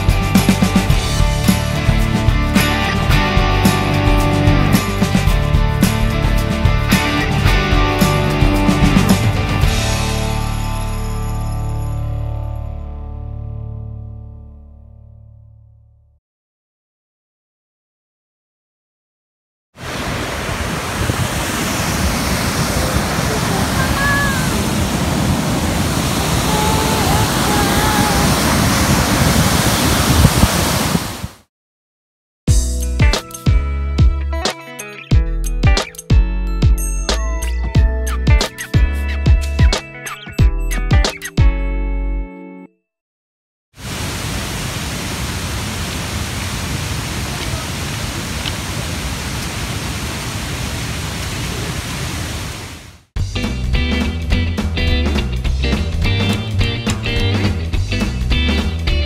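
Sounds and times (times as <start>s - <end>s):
waterfall rushing: 19.8s - 31.4s, 43.8s - 53.1s.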